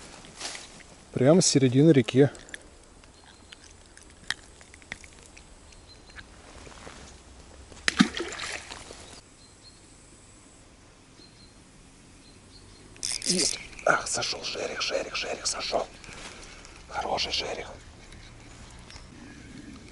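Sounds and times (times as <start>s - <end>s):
river water sloshing: 7.7s - 9.2s
water splash: 7.8s - 9.1s.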